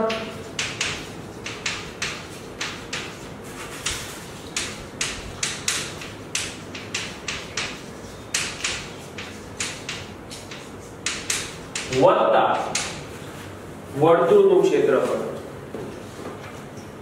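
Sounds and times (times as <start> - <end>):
chalk scratching on blackboard: 0.0 - 12.0.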